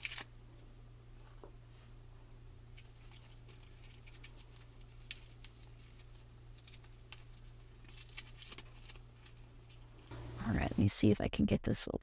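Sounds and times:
fingers tearing papery cocoon: 0.0 - 0.3, 2.8 - 10.0
low steady hum: 0.0 - 12.0.

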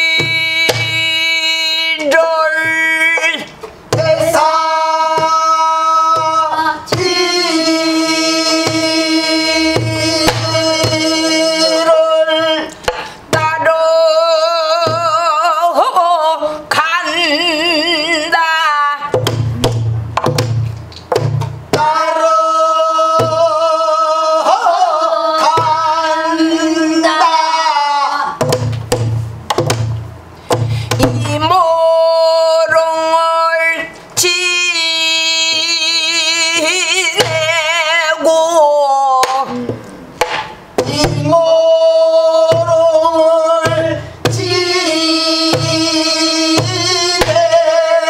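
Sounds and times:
woman singing with vibrato: 0.0 - 19.7, 21.7 - 28.4, 30.8 - 40.2, 40.8 - 48.0
barrel drum strokes: 3.8 - 11.9, 19.1 - 22.2, 28.4 - 31.6.

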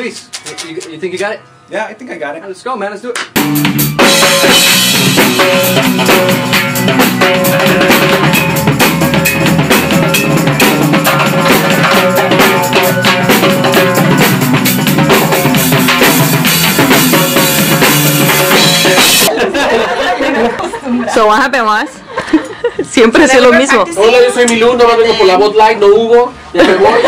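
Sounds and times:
conga drumming: 0.0 - 1.3, 3.2 - 19.3
drum kit: 0.0 - 1.4, 3.1 - 19.3
band playing live: 3.3 - 19.3.

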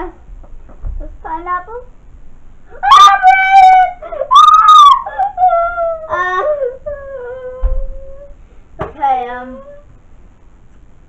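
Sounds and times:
person mock-crying wails: 2.7 - 8.3.

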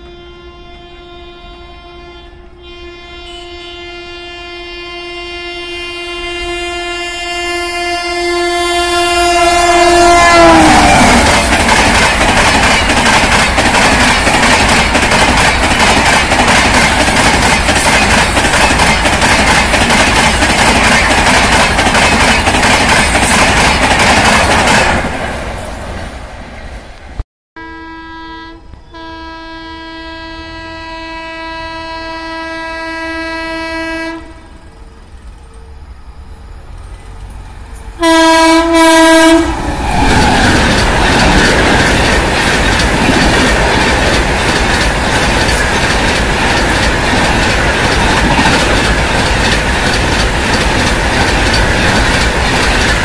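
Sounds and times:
distant train horn: 0.0 - 11.5, 27.6 - 36.5, 37.2 - 40.2
train horn: 0.0 - 11.5, 27.6 - 35.9, 38.0 - 39.6
train coaches rushing by: 8.2 - 27.2, 34.0 - 53.0.

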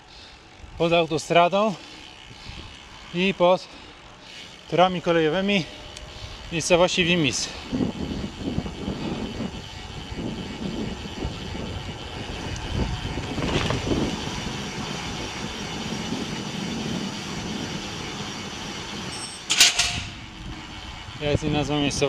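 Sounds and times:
motorway traffic noise: 0.0 - 22.0.

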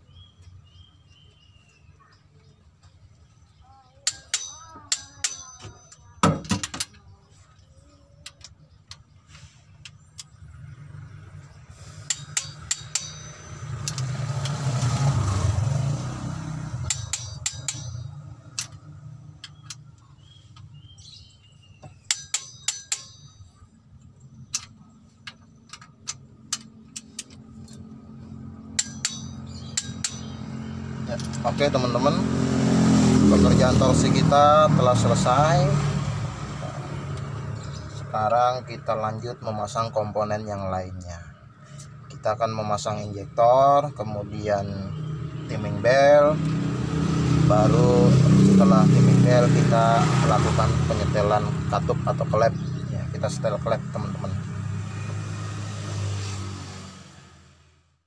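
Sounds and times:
sharp metal knock: 4.0 - 7.0, 12.0 - 14.6, 16.8 - 18.8, 21.8 - 23.6, 28.7 - 31.5
passing vehicle rumble: 9.2 - 21.7, 23.2 - 58.0.

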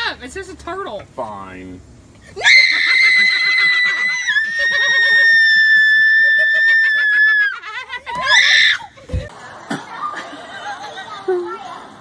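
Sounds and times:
woman screaming: 2.4 - 8.9.

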